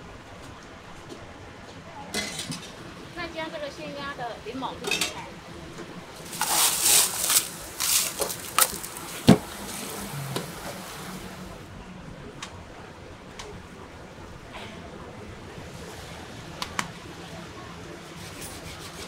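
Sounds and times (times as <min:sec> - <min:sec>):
ice cubes rattling: 0:06.2 - 0:09.3.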